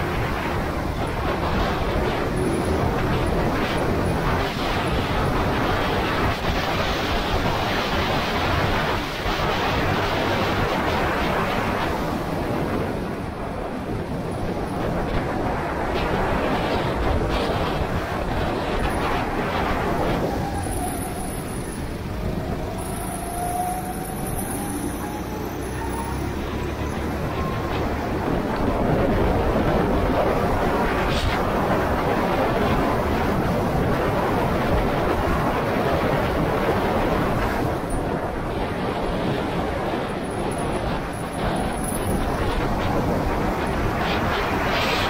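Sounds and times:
steady rush of noise: 0:00.0 - 0:45.0
wind buffeting microphone: 0:00.0 - 0:45.0.

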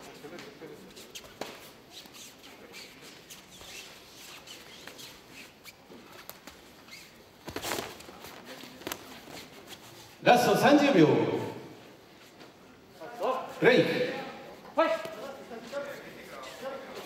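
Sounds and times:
bare feet squeaking on canvas: 0:00.8 - 0:10.2, 0:15.9 - 0:17.0.

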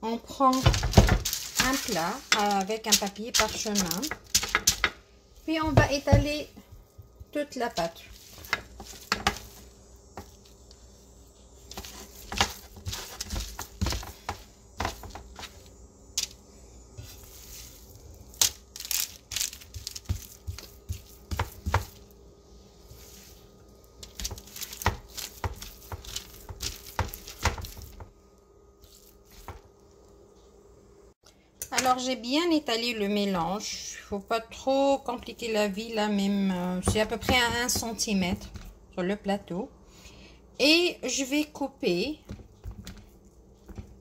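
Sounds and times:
faint steady hum: 0:00.0 - 0:44.0
hands patting and scraping dough: 0:00.3 - 0:10.9, 0:11.5 - 0:28.2, 0:28.8 - 0:29.8, 0:36.1 - 0:38.8, 0:41.9 - 0:44.0
parchment paper crinkling: 0:00.5 - 0:04.6, 0:11.7 - 0:15.4, 0:17.1 - 0:21.8, 0:24.0 - 0:28.0.

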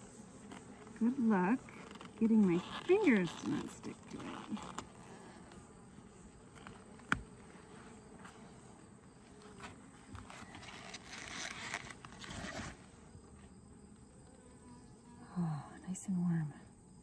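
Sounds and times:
rustling: 0:00.0 - 0:13.6
bees buzzing: 0:00.0 - 0:16.2.

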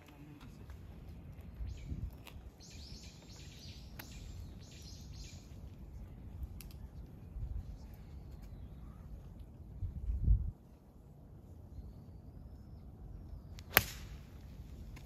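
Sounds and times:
wind rumble on microphone: 0:00.6 - 0:03.1, 0:05.6 - 0:11.9.

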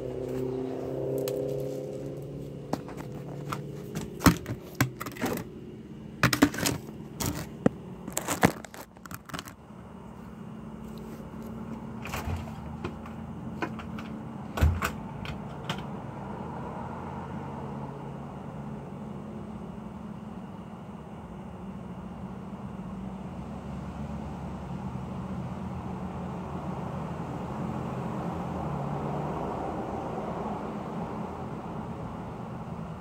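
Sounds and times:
phone handling clicks and knocks: 0:02.7 - 0:05.5, 0:06.2 - 0:09.6, 0:12.1 - 0:15.9.

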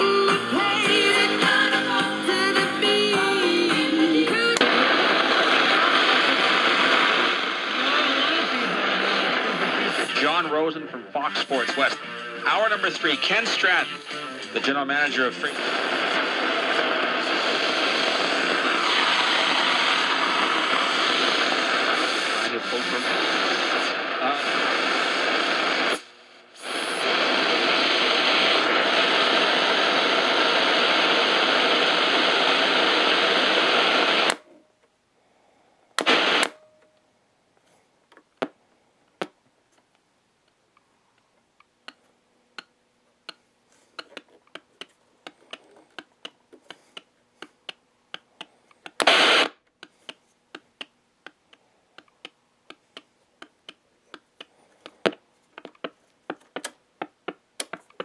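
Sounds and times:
radio static hiss: 0:00.0 - 0:34.6, 0:35.4 - 0:36.8, 0:40.5 - 0:58.0
radio clicks and crackles: 0:04.4 - 0:12.0, 0:14.6 - 0:35.0, 0:35.9 - 0:37.0, 0:38.0 - 0:58.0
short bursts of radio noise: 0:43.3 - 0:55.2.

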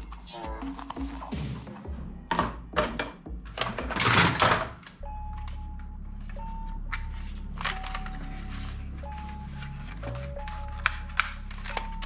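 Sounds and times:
plastic toy guns clattering: 0:03.6 - 0:04.8.

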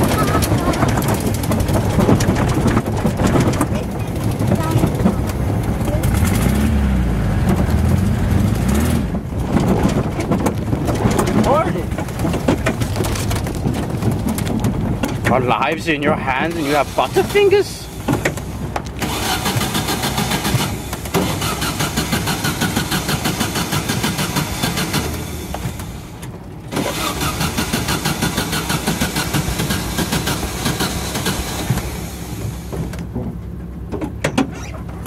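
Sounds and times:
dune buggy engine running: 0:00.0 - 0:35.0.

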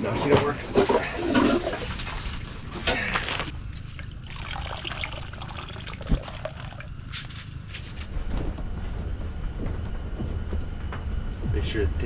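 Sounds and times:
water and slush sloshing: 0:00.4 - 0:03.5.

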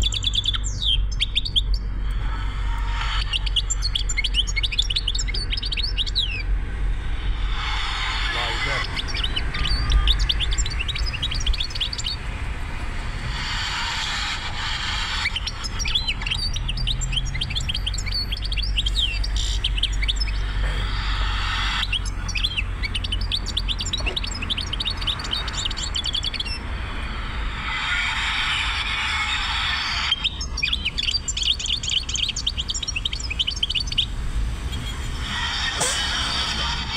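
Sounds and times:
car rumble on road: 0:00.0 - 0:36.9
goldfinch singing: 0:07.8 - 0:12.2, 0:15.3 - 0:20.8, 0:21.4 - 0:26.6, 0:30.1 - 0:34.1.

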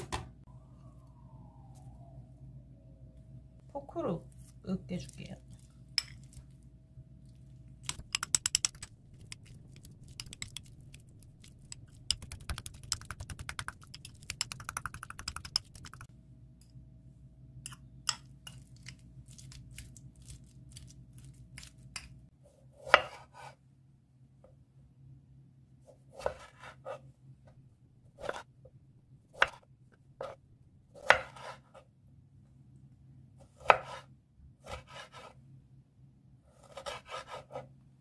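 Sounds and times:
fork tapping glass bowl: 0:07.9 - 0:08.9.

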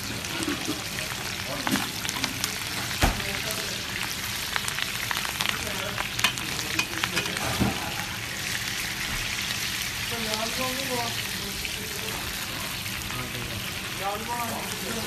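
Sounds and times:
steak sizzling in butter: 0:00.0 - 0:15.0.

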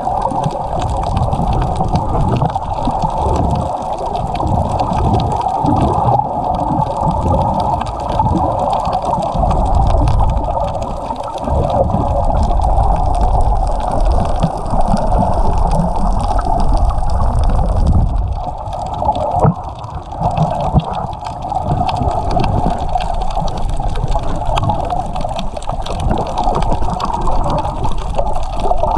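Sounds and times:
underwater water rush: 0:00.0 - 0:28.9
low rumble: 0:11.6 - 0:18.8.

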